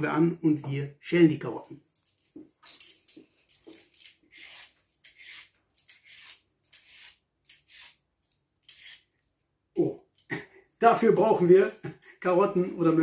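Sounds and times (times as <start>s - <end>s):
peeler scraping carrot: 4.0s - 8.0s, 8.6s - 9.1s.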